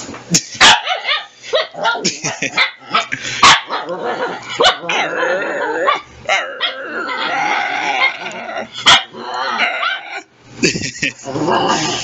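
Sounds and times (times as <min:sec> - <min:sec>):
dog barking: 0:00.6 - 0:04.9, 0:08.8 - 0:09.2
dog grumbling: 0:03.8 - 0:10.3, 0:11.0 - 0:12.0.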